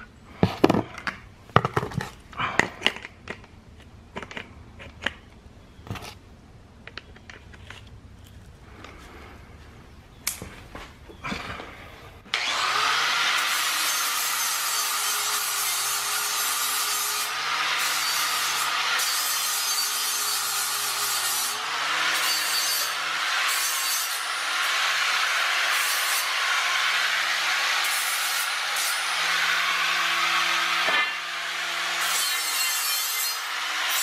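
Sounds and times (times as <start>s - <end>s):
angle grinder cutting steel: 12.3s - 34.0s.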